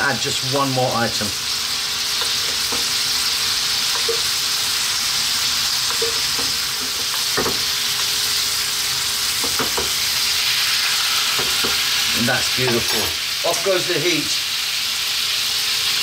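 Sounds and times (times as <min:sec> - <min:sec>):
sauce sizzling in a frying pan: 0:00.0 - 0:16.0
metal spoon knocking on a pan: 0:09.4 - 0:10.0.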